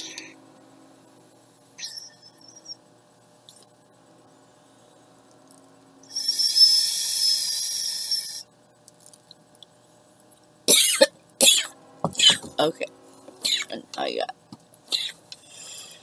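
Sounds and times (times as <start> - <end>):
butane torch jet hissing: 6.1 - 8.4.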